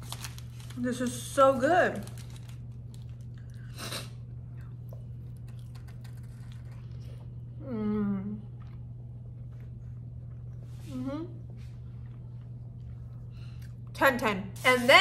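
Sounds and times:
steady low hum: 0:00.0 - 0:15.0
person chewing food: 0:02.7 - 0:07.6, 0:08.4 - 0:10.8, 0:11.4 - 0:13.9
person humming mmm: 0:07.6 - 0:08.5, 0:10.9 - 0:11.4.

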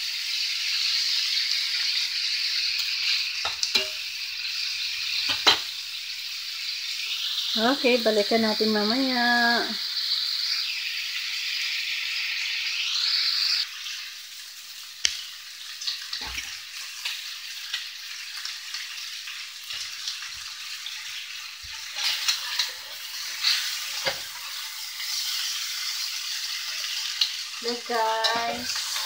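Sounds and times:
meat frying with a hiss: 0:00.0 - 0:29.0
spatula scraping a pan: 0:21.7 - 0:26.0, 0:28.0 - 0:29.0.

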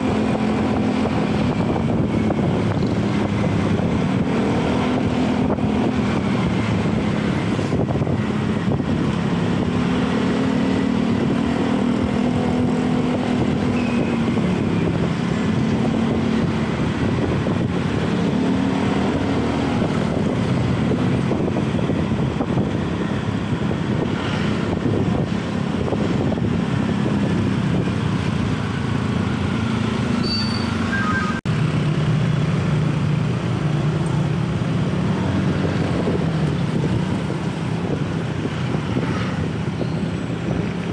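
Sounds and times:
wind on microphone: 0:00.0 - 0:30.2, 0:32.4 - 0:40.9
street traffic: 0:00.0 - 0:40.9.

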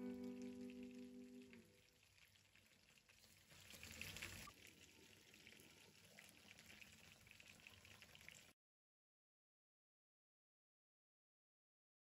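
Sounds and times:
curry simmering with small bubbles: 0:00.0 - 0:08.6.

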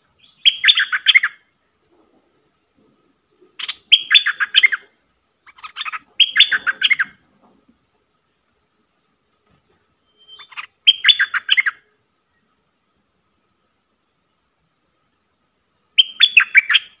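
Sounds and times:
bird singing warbled notes: 0:05.7 - 0:07.2, 0:10.1 - 0:11.8, 0:15.9 - 0:17.0.

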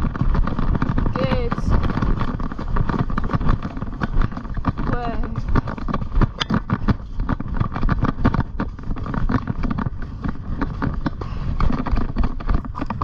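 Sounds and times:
pony hoofbeats: 0:00.0 - 0:13.0
wind on microphone: 0:00.0 - 0:13.0.

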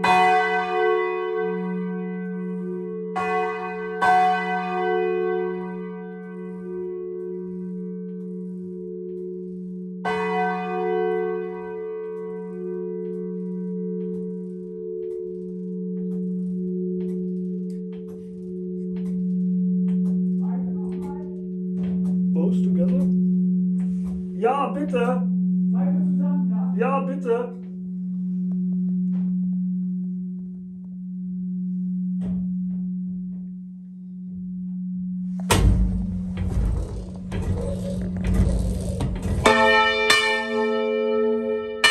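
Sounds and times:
church bell ringing: 0:00.0 - 0:23.8, 0:39.4 - 0:41.9
low hum of bells: 0:00.0 - 0:35.4, 0:36.0 - 0:41.9.

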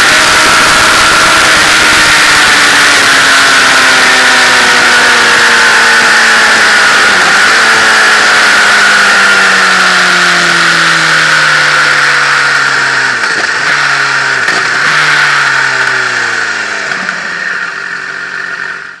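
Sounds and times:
wind noise: 0:00.0 - 0:03.9
motorcycle engine: 0:00.0 - 0:19.0.

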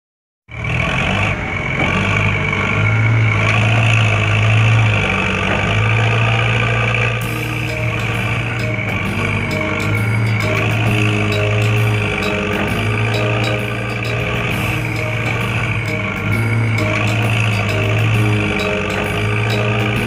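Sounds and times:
diesel truck engine idling: 0:00.5 - 0:20.0.

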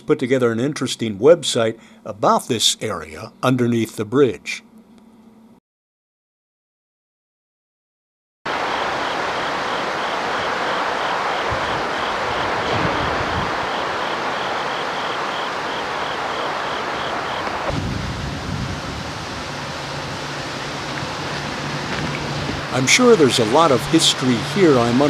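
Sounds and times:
low hum: 0:08.5 - 0:25.0
wind rushing: 0:08.5 - 0:25.0.

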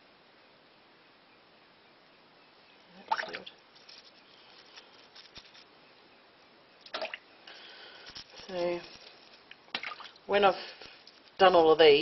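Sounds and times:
water drips: 0:02.9 - 0:03.7, 0:06.8 - 0:08.8, 0:09.4 - 0:11.4
wet splash: 0:03.0 - 0:03.5, 0:06.9 - 0:07.2, 0:09.7 - 0:10.4
small scrapes and clicks: 0:03.7 - 0:05.7, 0:07.5 - 0:09.6.

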